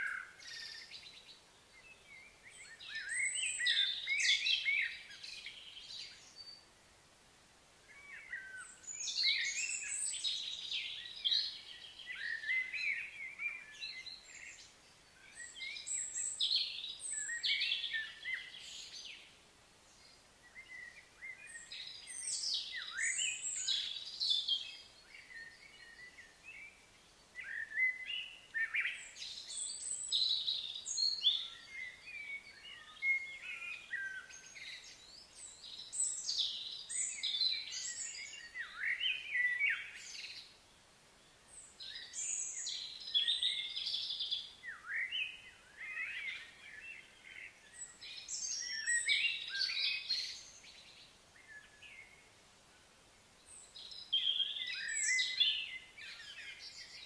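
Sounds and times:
birds chirping and calling: 41.6 - 52.0, 53.8 - 57.0.

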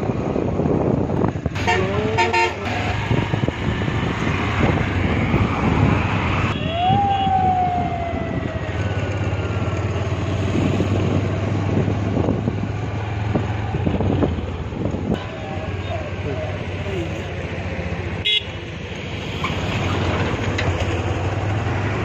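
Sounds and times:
traffic engine drone: 0.0 - 22.0
vehicle horn: 1.6 - 3.2, 18.2 - 18.6.

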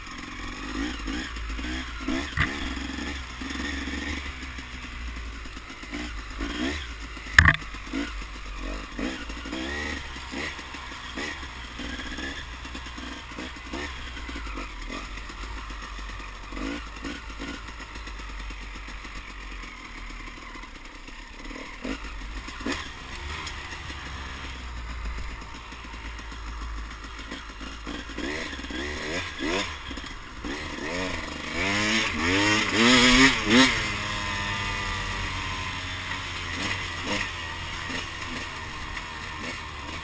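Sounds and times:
off-road engine revving: 0.0 - 40.0
sharp knocks: 7.4 - 7.6.

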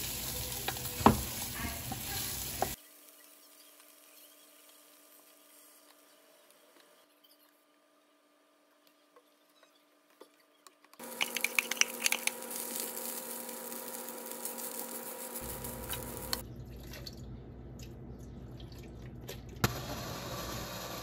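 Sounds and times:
rice sizzling in frying pan: 0.0 - 6.2, 11.0 - 16.4, 19.6 - 21.0.

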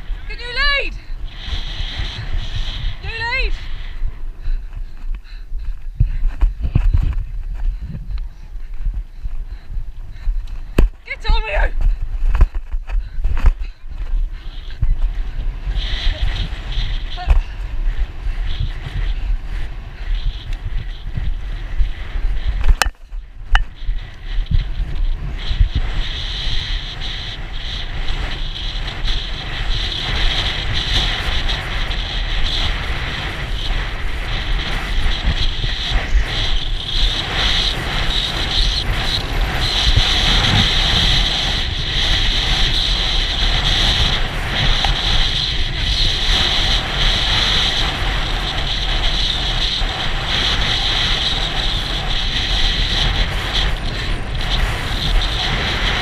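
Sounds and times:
hooves thudding: 0.0 - 25.0
steady rumble: 0.0 - 56.0
wind rushing over microphone: 0.0 - 56.0.

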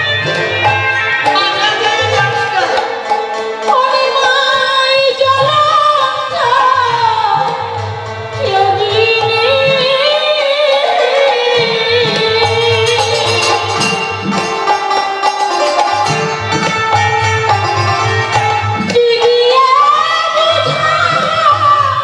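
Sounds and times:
woman singing into a microphone: 0.0 - 14.0, 18.7 - 22.0
drums: 0.0 - 22.0.

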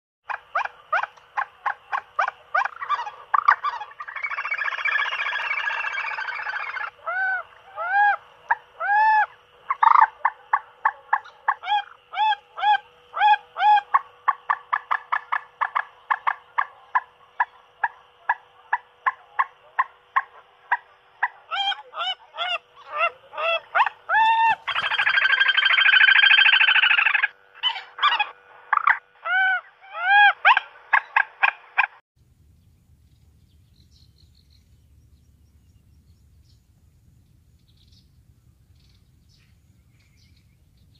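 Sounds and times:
recorded bird call through speaker: 0.3 - 31.6
faint steady hum: 0.3 - 40.9
faint low rumble: 32.2 - 40.9.

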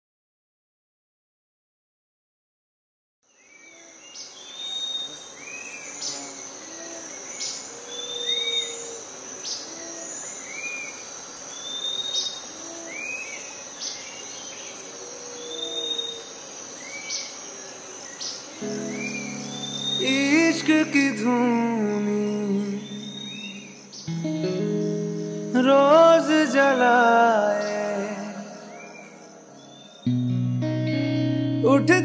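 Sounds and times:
high-pitched insect trill: 3.7 - 30.3
short arched bird calls: 11.6 - 17.4, 18.1 - 21.0, 22.6 - 25.7.

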